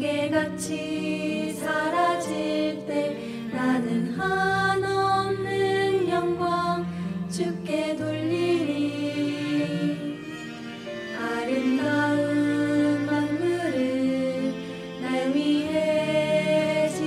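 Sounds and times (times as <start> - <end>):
women singing duet: 0.0 - 10.2, 11.2 - 17.0
sustained instrumental accompaniment: 0.0 - 17.0.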